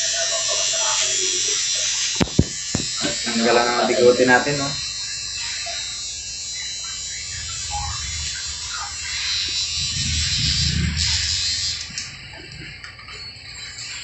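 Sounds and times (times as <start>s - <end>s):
electric hair clippers buzzing: 0.0s - 10.1s
low rumble: 6.9s - 13.0s.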